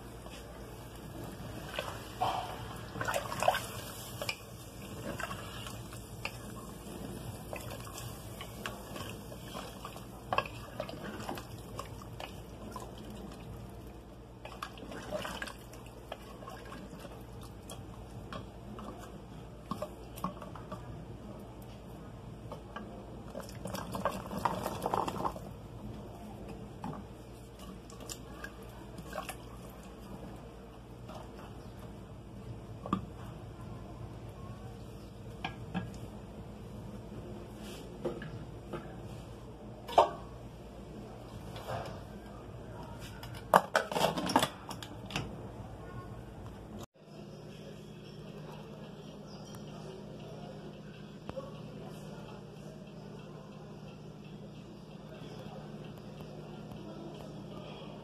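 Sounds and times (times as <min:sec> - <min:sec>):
liquid sloshing in a pot: 0:00.2 - 0:13.7, 0:14.4 - 0:20.9, 0:22.5 - 0:25.7, 0:26.4 - 0:30.4.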